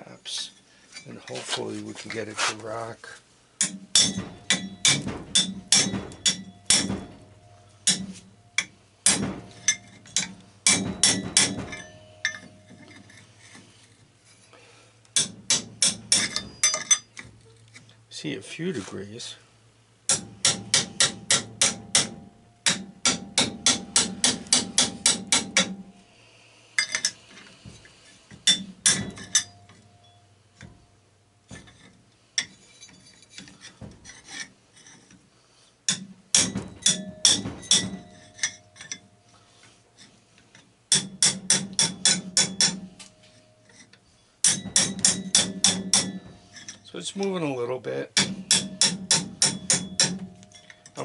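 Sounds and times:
tool scraping and clicking: 31.6s - 35.3s
hammer tapping on steel shovel: 40.9s - 46.8s, 48.2s - 51.0s.

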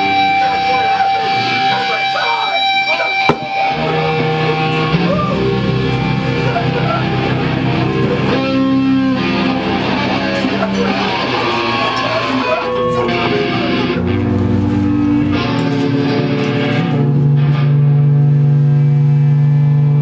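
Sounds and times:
heavy metal band playing: 0.0s - 20.0s.

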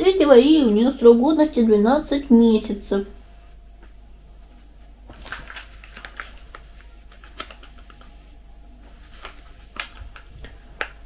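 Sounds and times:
plastic pouch crinkling: 5.1s - 8.2s, 8.9s - 11.0s.

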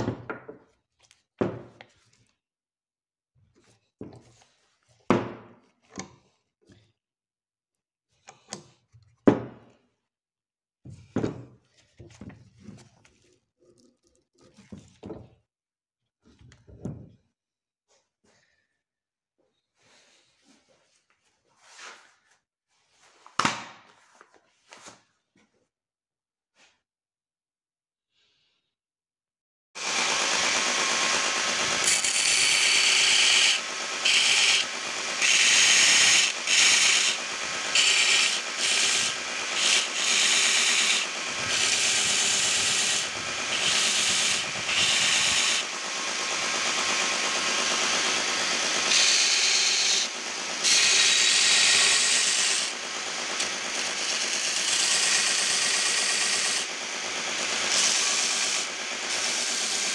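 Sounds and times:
belt grinder running: 29.8s - 59.9s
wooden handle sanding on belt: 31.9s - 45.6s.

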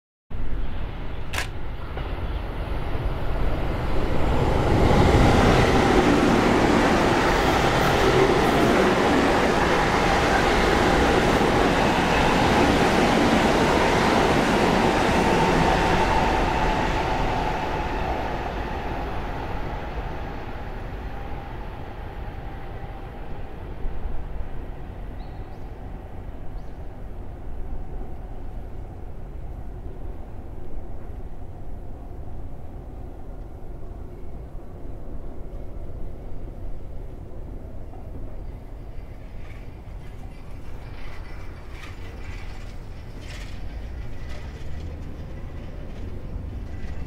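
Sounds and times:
train rumbling past: 0.3s - 47.0s.

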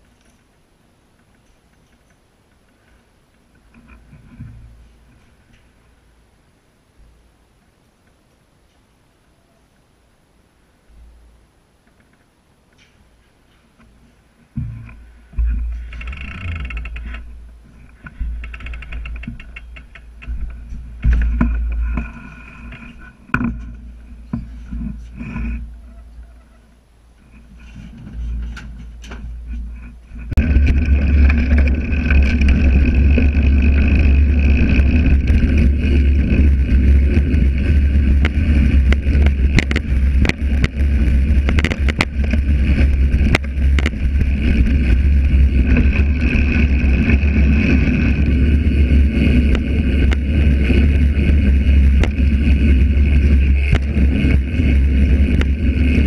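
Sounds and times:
quiet clicks: 0.0s - 4.4s
wind and tyres rumbling: 0.0s - 56.0s
bike rattling over bumps: 1.2s - 5.9s, 11.8s - 56.0s.

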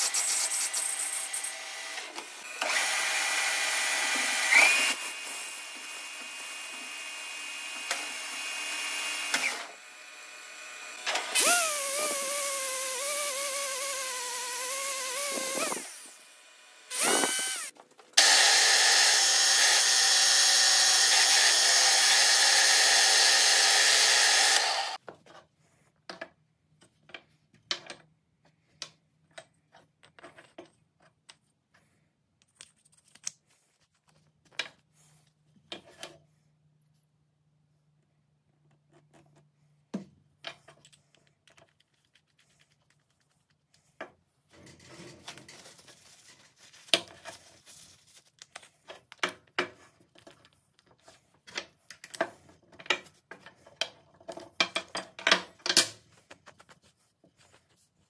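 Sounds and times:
metal lathe cutting brass: 1.2s - 25.0s.

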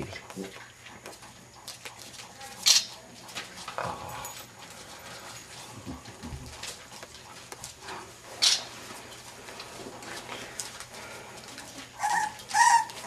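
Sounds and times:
puppies whimpering: 12.0s - 13.0s.

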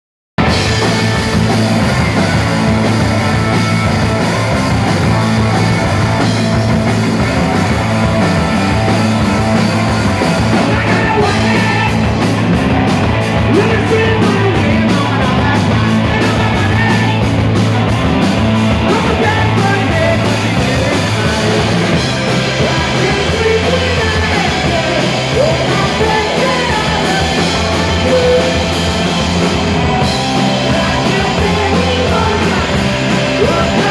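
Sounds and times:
punk rock band playing: 0.4s - 33.9s
woman singing: 30.7s - 33.9s.

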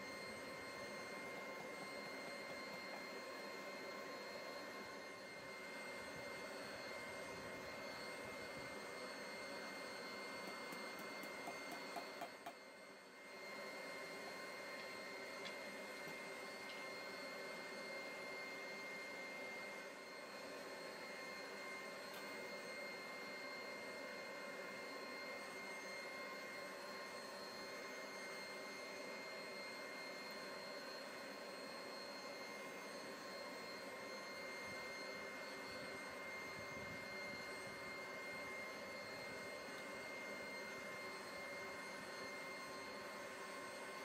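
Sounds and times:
high steady whine: 0.0s - 44.0s.

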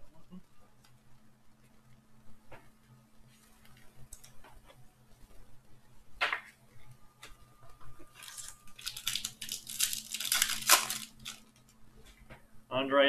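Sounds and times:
foil wrapper tearing and crinkling: 8.1s - 11.7s.

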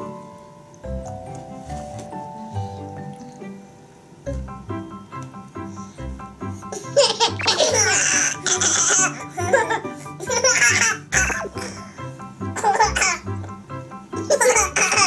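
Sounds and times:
background music: 0.0s - 15.0s
babies laughing: 6.7s - 11.8s, 12.6s - 13.3s, 14.2s - 15.0s.

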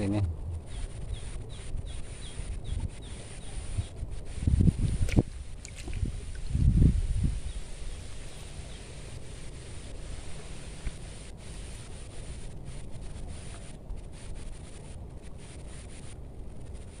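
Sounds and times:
low outdoor rumble: 0.0s - 17.0s
hands rubbing soft bait: 2.9s - 17.0s.

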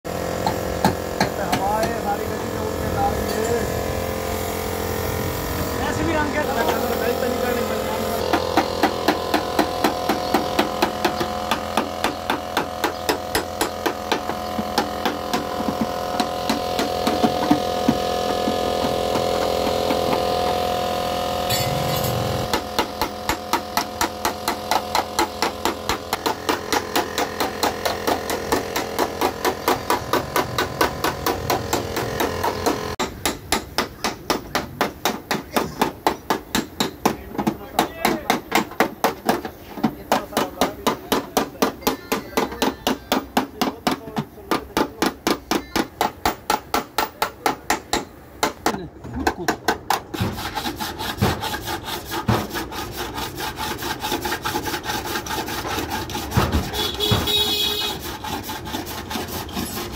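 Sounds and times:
hammer tapping on sheet metal: 21.5s - 50.4s.

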